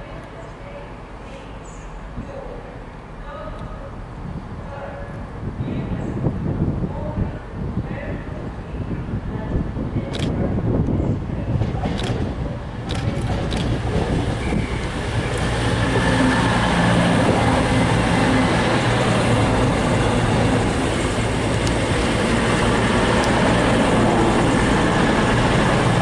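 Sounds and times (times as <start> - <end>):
diesel train engines running: 8.3 - 26.0
train wheels rumbling on rails: 9.0 - 26.0.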